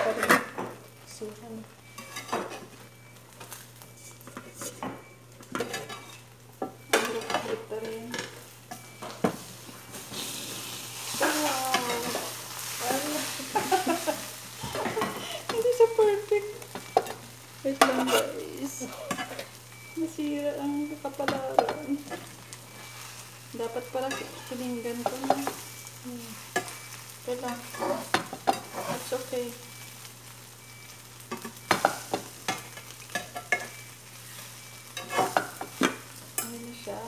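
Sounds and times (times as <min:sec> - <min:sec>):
omelette sizzling in frying pan: 0:00.0 - 0:37.0
metal spatula scraping pan: 0:17.8 - 0:18.4, 0:26.4 - 0:29.2, 0:34.4 - 0:35.8.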